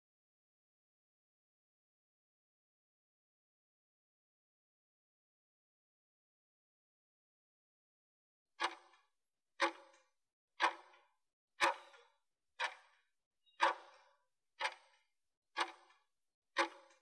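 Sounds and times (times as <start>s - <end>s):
timer ticks: 8.6s - 17.0s.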